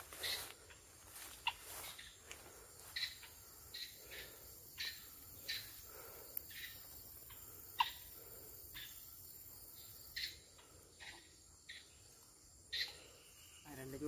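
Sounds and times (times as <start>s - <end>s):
footsteps swishing through grass: 0.0s - 3.1s.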